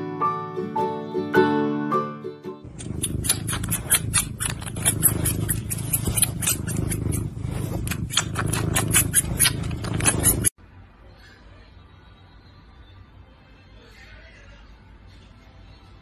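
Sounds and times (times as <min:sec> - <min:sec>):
kitten teeth clicking and crunching: 0:02.7 - 0:10.5.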